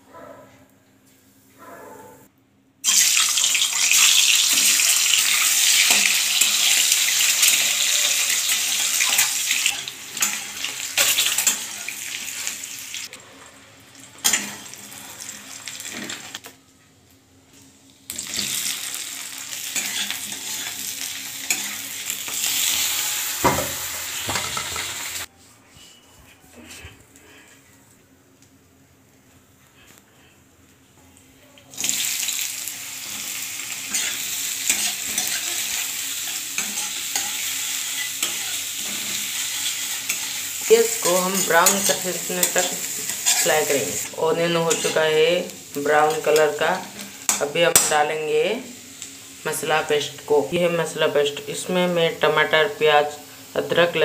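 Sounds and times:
hot oil sizzling in a wok: 0:02.8 - 0:13.2, 0:13.8 - 0:16.5, 0:18.0 - 0:25.3, 0:31.7 - 0:50.4.

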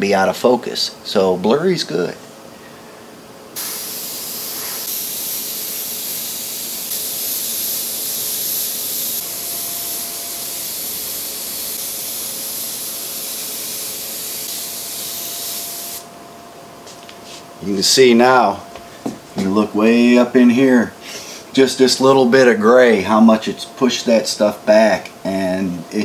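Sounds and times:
airbrush air hiss: 0:03.6 - 0:16.1.

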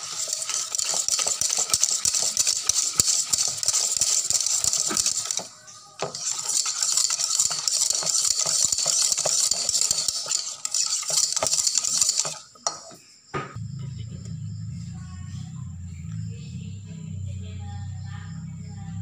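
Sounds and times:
wire whisk scraping a bowl: 0:00.0 - 0:13.0.

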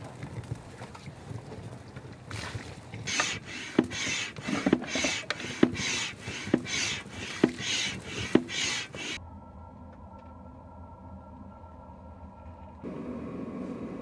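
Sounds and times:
bailing strokes rasping: 0:03.0 - 0:09.2.

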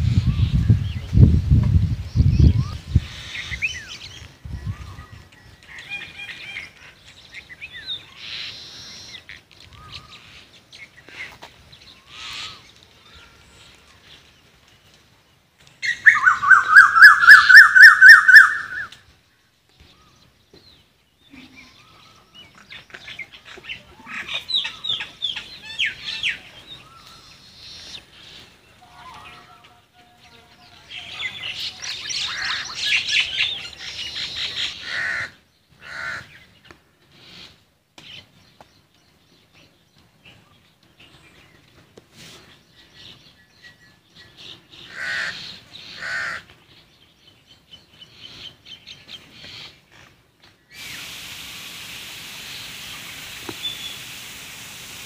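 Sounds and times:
birds chirping and calling: 0:00.0 - 0:51.2, 0:52.4 - 0:54.2.

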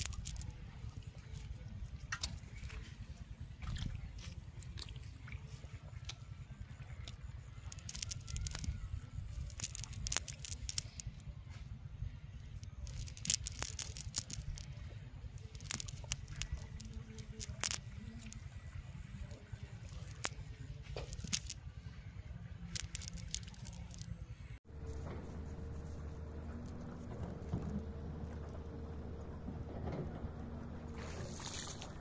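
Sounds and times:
clicks and rustles of net mesh: 0:00.0 - 0:00.5, 0:07.7 - 0:11.2, 0:12.6 - 0:14.8, 0:15.4 - 0:18.4, 0:19.8 - 0:21.6, 0:22.7 - 0:24.1
steady low rumble: 0:00.0 - 0:32.0.

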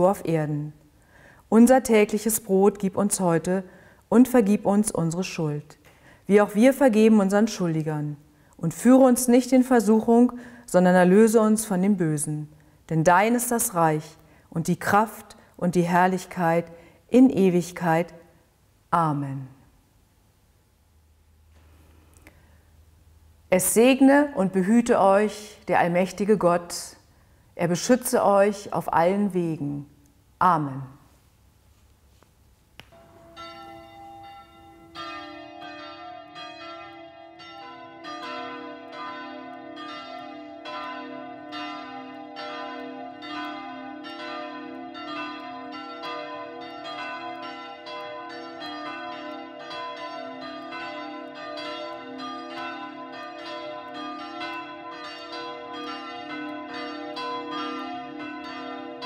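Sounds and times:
church bells pealing: 0:33.0 - 0:59.0.

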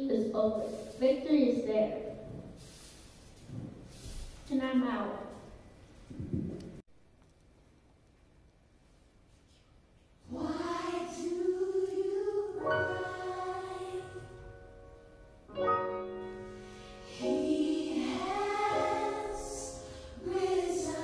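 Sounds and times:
choir singing gospel chords: 0:10.2 - 0:15.5, 0:16.1 - 0:21.0.

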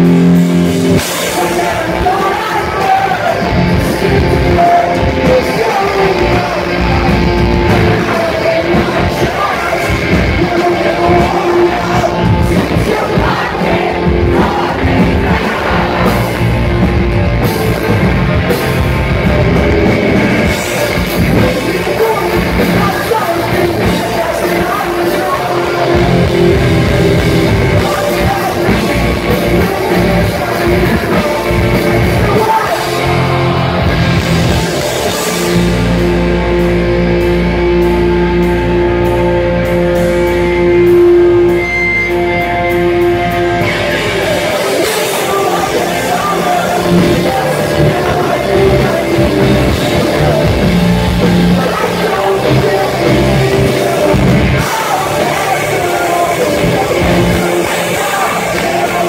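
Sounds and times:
person singing: 0:00.0 - 0:59.0
pop-punk band playing live: 0:00.0 - 0:59.0.

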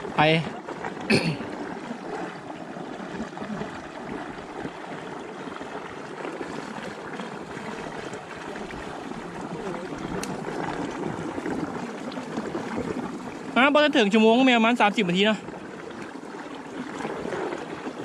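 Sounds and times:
water running: 0:00.0 - 0:18.0.

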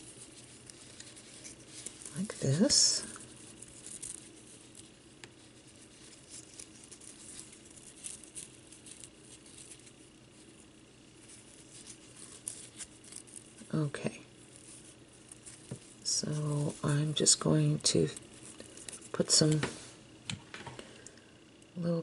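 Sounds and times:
ribbon rustling and crinkling: 0:00.0 - 0:20.0.

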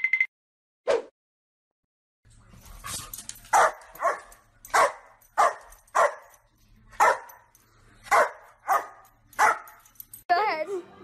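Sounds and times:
dog barking: 0:03.5 - 0:06.4, 0:07.0 - 0:09.8.

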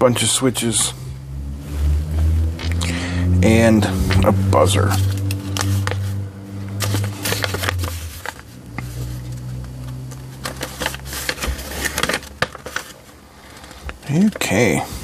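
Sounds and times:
paper sheet rustling: 0:05.0 - 0:06.2, 0:06.8 - 0:14.6.

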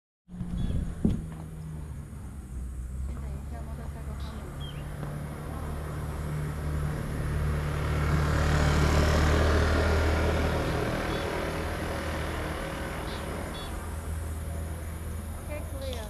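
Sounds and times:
motor scooter passing: 0:00.3 - 0:16.0.

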